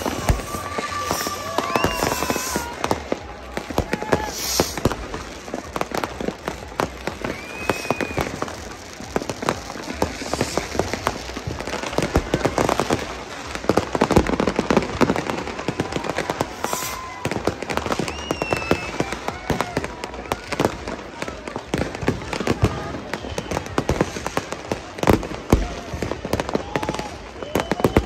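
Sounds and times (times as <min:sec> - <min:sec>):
fireworks bangs and crackles: 0:00.0 - 0:28.0.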